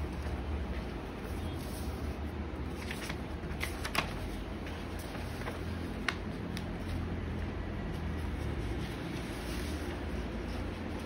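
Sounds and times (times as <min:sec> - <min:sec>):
paper rustling and crinkling: 0:00.0 - 0:07.1, 0:07.8 - 0:11.0
sharp paper crackles: 0:00.0 - 0:07.1.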